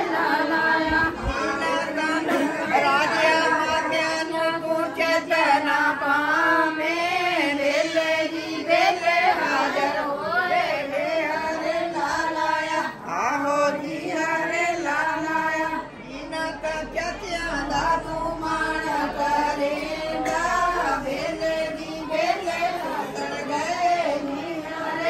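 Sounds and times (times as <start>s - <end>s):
women singing in unison: 0.0s - 25.0s.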